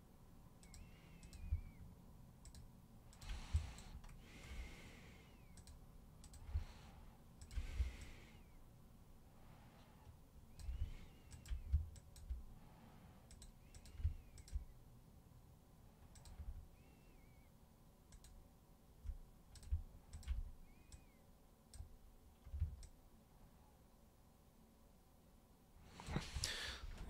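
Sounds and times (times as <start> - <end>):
computer mouse and keyboard clicks: 0.6 - 1.7, 2.4 - 4.2, 5.5 - 6.6, 7.4 - 8.2, 10.5 - 12.5, 13.2 - 14.7, 16.0 - 16.6, 18.1 - 18.4, 19.0 - 21.1, 21.7 - 23.0.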